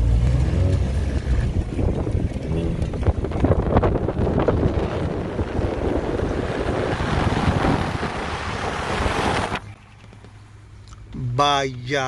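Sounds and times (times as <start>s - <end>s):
road noise: 0.0s - 12.0s
wind buffeting microphone: 1.2s - 9.9s.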